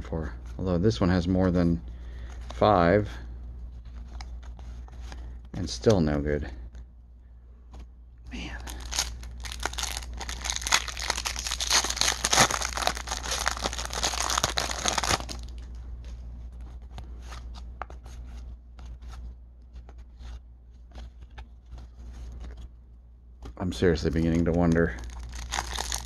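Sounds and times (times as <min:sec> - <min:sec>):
cards rustling: 0:03.7 - 0:06.9, 0:07.7 - 0:22.7, 0:23.4 - 0:26.0
wrapper tearing and crinkling: 0:08.6 - 0:15.6, 0:24.7 - 0:26.0.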